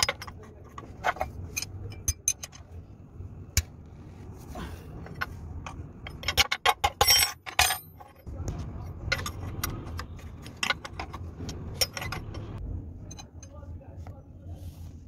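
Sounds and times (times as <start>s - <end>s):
metal tools clinking: 0.0s - 2.8s, 5.0s - 13.7s
steady low hum: 0.0s - 15.0s.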